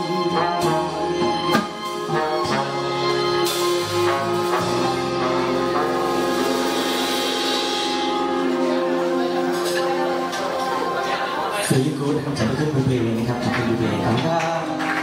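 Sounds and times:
live band playing: 0.0s - 15.0s
cymbals ringing: 1.8s - 11.6s.

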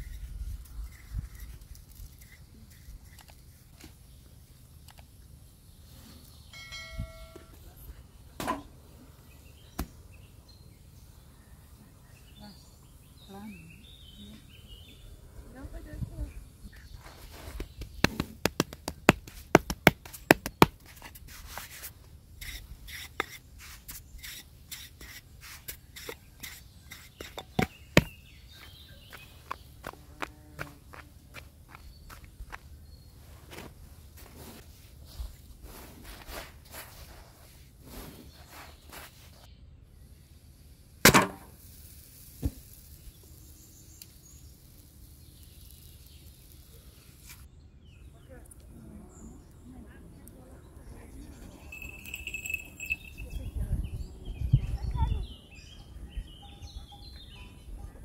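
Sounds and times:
hands slapping bread dough: 17.4s - 21.2s
faint insect hiss: 36.8s - 47.5s
sharp loud click: 41.0s - 41.5s.

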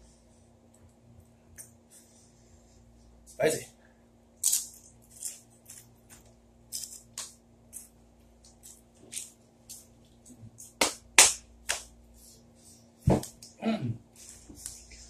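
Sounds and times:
chips crunching: 4.4s - 10.8s.

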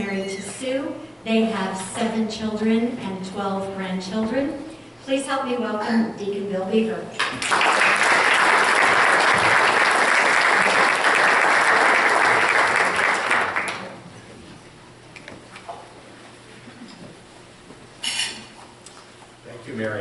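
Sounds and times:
audience applauding: 7.2s - 14.0s.

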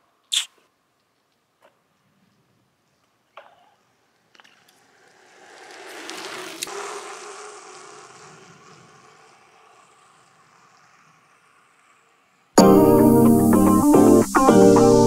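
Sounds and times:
vehicle passing by: 4.6s - 15.0s.

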